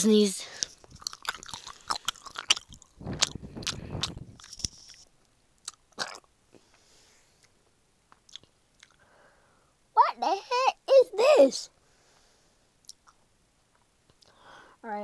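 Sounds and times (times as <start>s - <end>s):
mouth clicks and smacks chewing: 0.6s - 6.3s, 8.1s - 9.0s, 12.8s - 14.3s.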